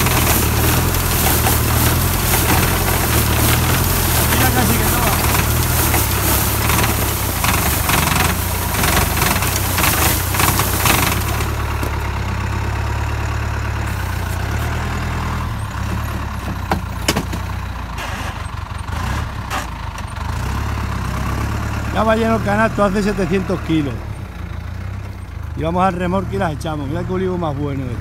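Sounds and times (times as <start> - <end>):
rattling of shaking branches: 0.0 - 12.4
tractor engine running: 0.0 - 28.0.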